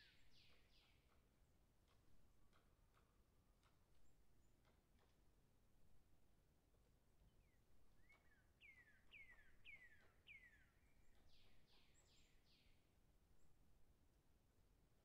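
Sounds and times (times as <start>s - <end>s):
bird chirps: 0.0s - 1.2s, 7.3s - 12.8s.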